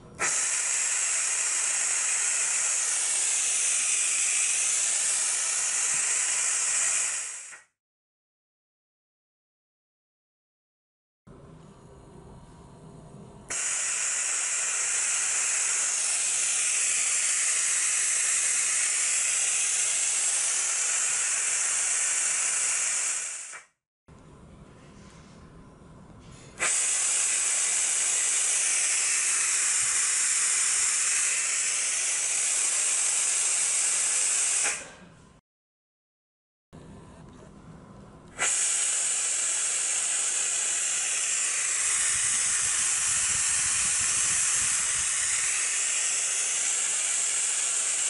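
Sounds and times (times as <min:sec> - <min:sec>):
air hissing: 0:00.2 - 0:07.7, 0:13.5 - 0:23.7, 0:26.6 - 0:35.0, 0:38.4 - 0:48.0.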